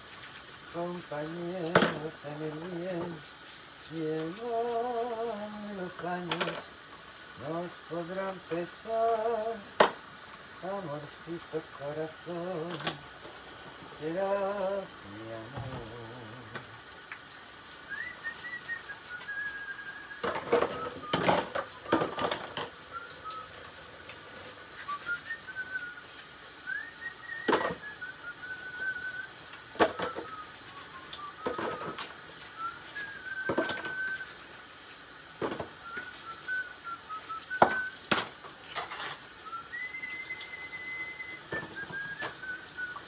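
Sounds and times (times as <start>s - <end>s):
dishes clinking while washed: 1.2s - 3.2s, 4.1s - 6.8s, 9.7s - 10.0s, 11.9s - 16.7s, 20.2s - 23.5s, 27.3s - 28.0s, 29.7s - 32.2s, 32.8s - 34.2s, 35.4s - 43.0s
person whistling a melody: 17.8s - 23.6s, 24.8s - 34.4s, 35.8s - 38.1s, 39.4s - 43.0s.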